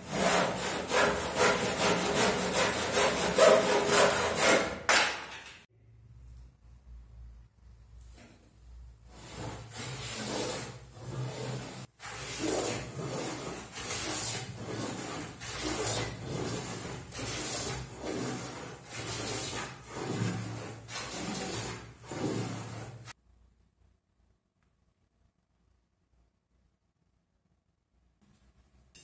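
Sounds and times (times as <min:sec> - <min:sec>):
hand plane shaving wood: 0:00.0 - 0:04.7, 0:09.1 - 0:23.1.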